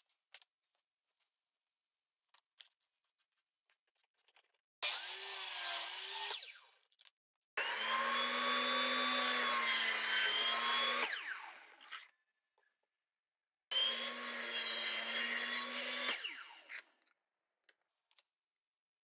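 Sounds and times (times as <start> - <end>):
table saw cutting: 4.8 - 6.7, 7.6 - 12.0, 13.7 - 16.8.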